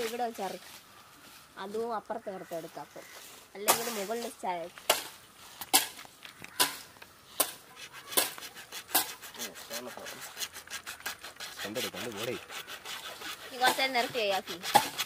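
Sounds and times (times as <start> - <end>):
rasping strokes on wood: 7.7 - 15.0
person speaking: 13.4 - 14.7.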